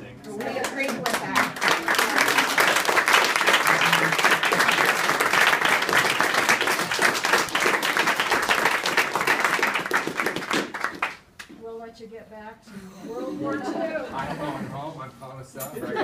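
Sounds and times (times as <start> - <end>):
people applauding: 0.3 - 11.2.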